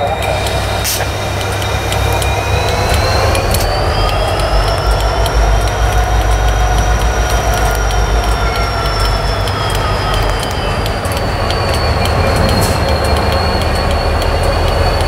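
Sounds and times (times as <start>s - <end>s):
diesel locomotive engine rumble: 0.0s - 15.0s
high whine rising in pitch: 0.0s - 15.0s.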